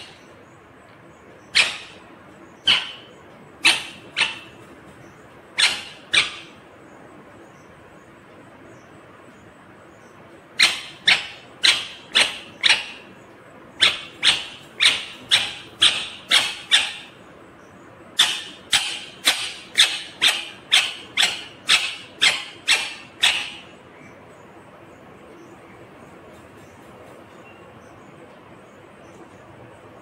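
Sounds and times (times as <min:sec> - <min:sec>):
parakeet squawking: 0:01.4 - 0:04.8, 0:05.6 - 0:06.6, 0:10.6 - 0:13.2, 0:13.8 - 0:17.2, 0:18.2 - 0:23.8.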